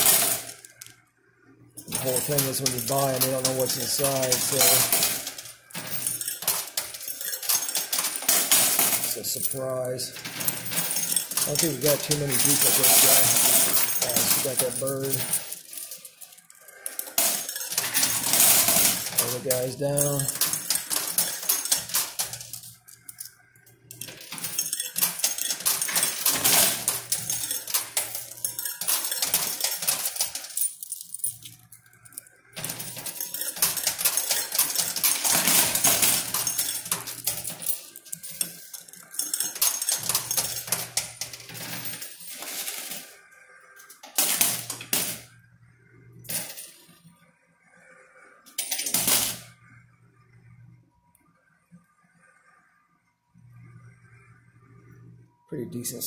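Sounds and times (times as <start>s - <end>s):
coins clattering in a coin pusher: 0.0s - 0.9s, 1.8s - 43.2s, 43.8s - 45.4s, 46.2s - 47.0s, 48.5s - 49.6s
low hum: 49.5s - 55.5s.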